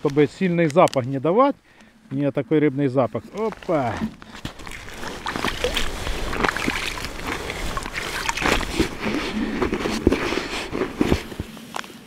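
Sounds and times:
wet squishing of kneaded bait: 3.4 - 10.7.

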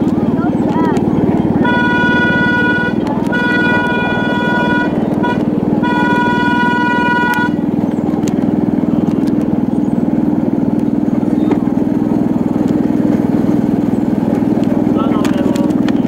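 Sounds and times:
small train engine running: 0.0 - 16.0
train horn signal: 1.6 - 7.7.

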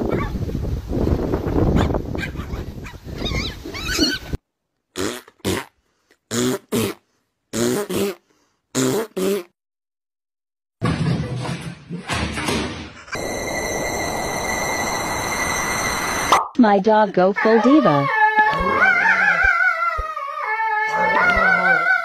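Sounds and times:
outdoor noise: 0.0 - 8.7, 10.8 - 22.0
puppy barking: 1.8 - 4.2
dog yelping: 1.8 - 4.4, 17.4 - 22.0.

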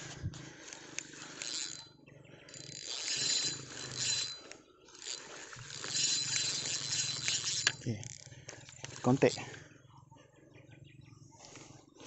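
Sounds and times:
spinning reel whirring: 0.6 - 9.6.

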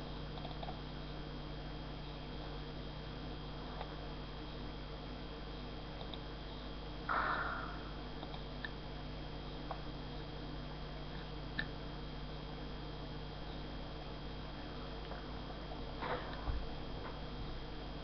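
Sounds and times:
low hum and hiss: 0.0 - 18.0
faint clicks: 0.4 - 0.8, 6.0 - 6.2, 8.2 - 8.8.

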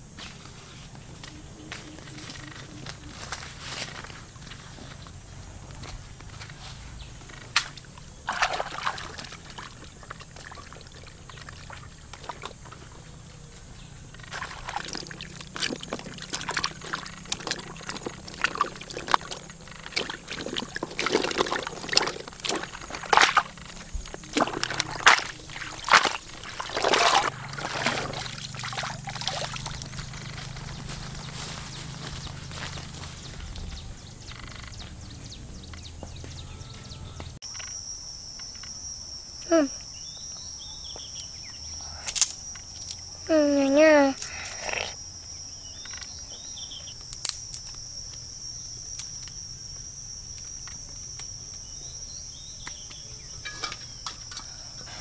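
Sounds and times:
shallow water splashing: 8.2 - 12.8, 14.3 - 30.2.

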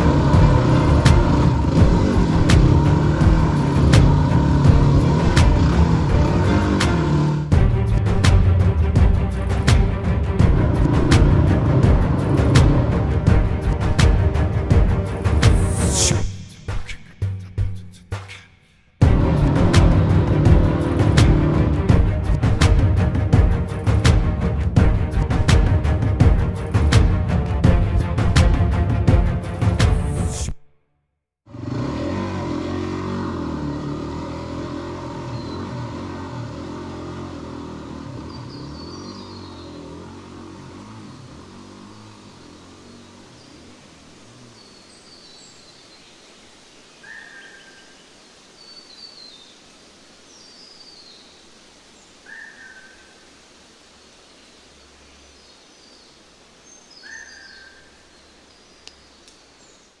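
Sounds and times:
engine receding: 0.0 - 16.5, 19.0 - 30.6, 31.4 - 45.5
faint outdoor hiss: 32.6 - 60.0
birds chirping and calling: 35.1 - 36.1, 56.7 - 59.9.

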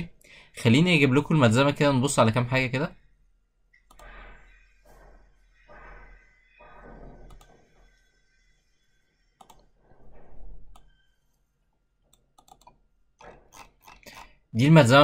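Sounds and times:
computer mouse clicks: 3.8 - 4.3, 7.2 - 7.6, 9.4 - 9.7, 10.7 - 11.0, 12.1 - 12.8.

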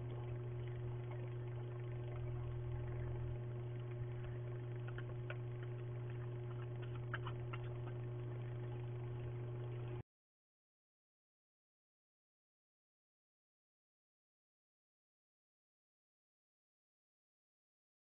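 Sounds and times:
faint clicks: 0.0 - 8.9
electrical hum: 0.0 - 10.0.

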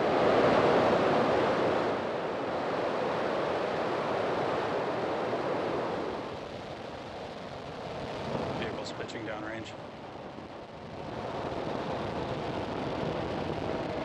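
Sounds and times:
rocket engines thundering: 6.2 - 14.0.

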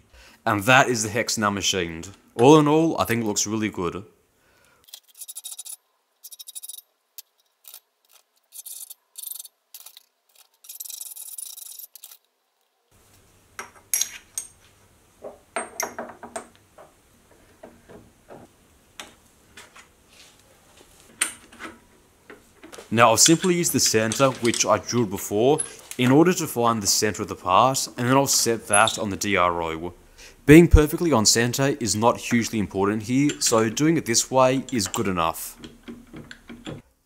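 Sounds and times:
metallic clinks and knocks: 15.2 - 16.5.

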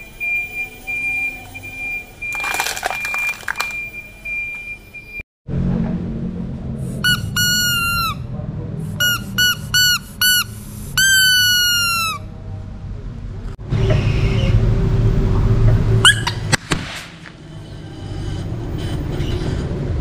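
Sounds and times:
rubber duck squeaking: 7.0 - 8.2, 9.0 - 12.2, 16.0 - 16.6.

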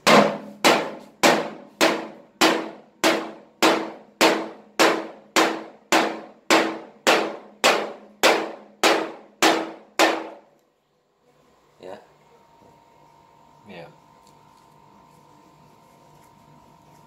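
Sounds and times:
drum hits: 0.0 - 10.4.

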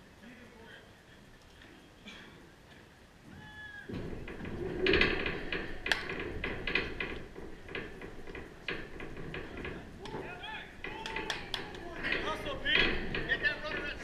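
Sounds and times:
people shouting: 3.3 - 3.9
clattering knocks: 3.9 - 14.0.

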